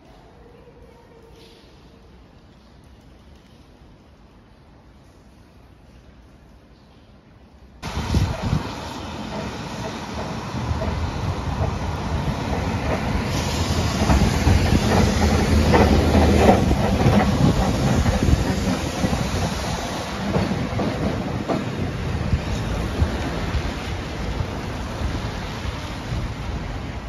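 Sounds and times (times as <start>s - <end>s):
tram wheels clattering over rails: 7.8s - 27.0s.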